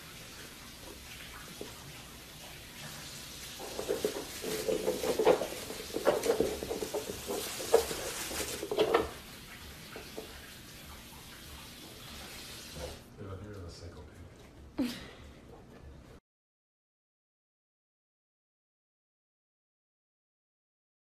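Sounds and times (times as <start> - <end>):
paper and fabric rustling: 3.4 - 9.2.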